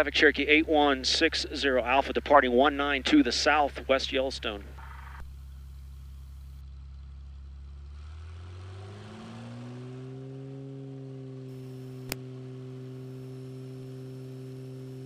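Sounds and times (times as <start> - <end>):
aircraft engine and propeller: 10.0 - 15.0
sharp click: 12.0 - 12.2.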